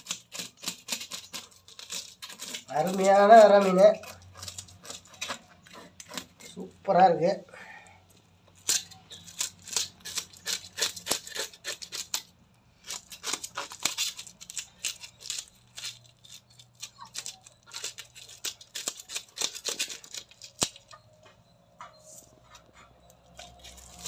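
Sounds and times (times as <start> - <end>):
knife scraping fish scales: 0.0 - 6.7, 8.6 - 21.0, 22.0 - 24.0.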